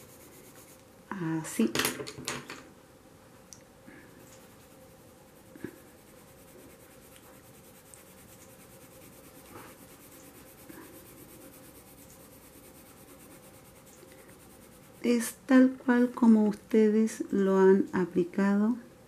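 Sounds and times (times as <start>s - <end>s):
pencil scratching on paper: 0.0s - 0.8s, 4.1s - 15.2s.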